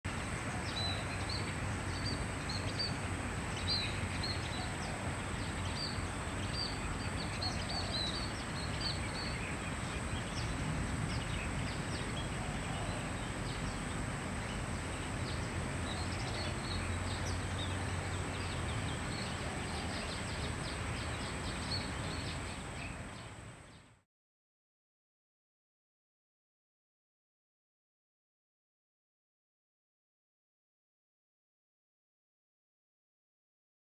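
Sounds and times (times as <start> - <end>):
bird chirping calls: 0.4 - 23.9.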